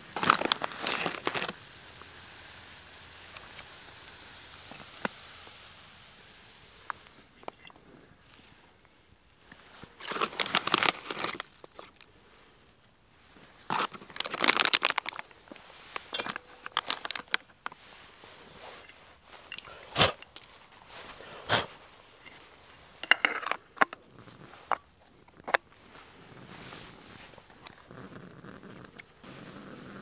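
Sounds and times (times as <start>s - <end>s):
plastic bag crinkling: 0.0s - 1.6s, 9.5s - 12.1s, 13.6s - 17.8s.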